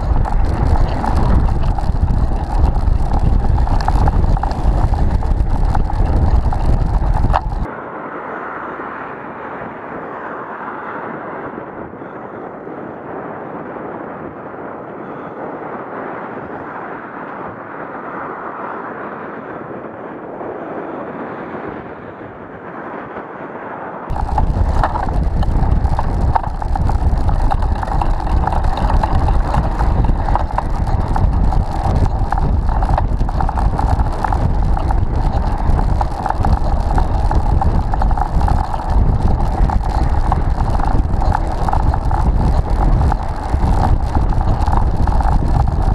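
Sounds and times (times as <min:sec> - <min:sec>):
wind rumble on microphone: 0:00.0 - 0:45.9.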